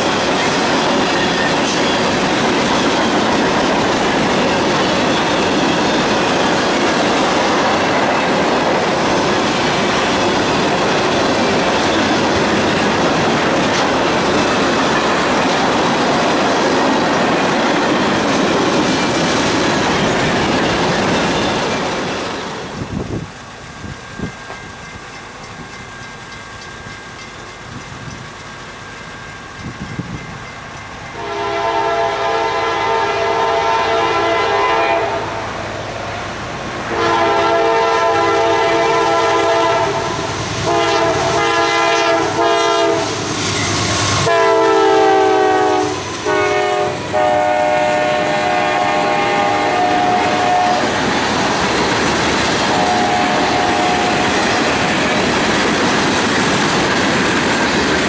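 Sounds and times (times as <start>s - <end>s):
train cars rumbling and clattering: 0.0s - 58.0s
locomotive air horn blasts: 31.2s - 35.4s, 36.9s - 43.2s, 44.2s - 51.0s, 52.7s - 54.4s.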